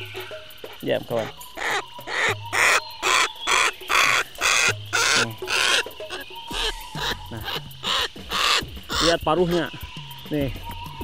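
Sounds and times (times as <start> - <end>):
cockatoo screeching: 1.1 - 9.8.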